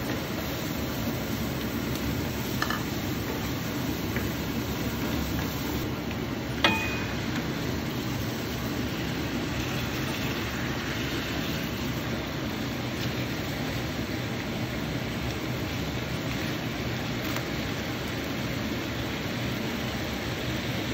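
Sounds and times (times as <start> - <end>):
food cooking in a wok: 0.0 - 20.9
sharp metallic clink: 6.6 - 7.2.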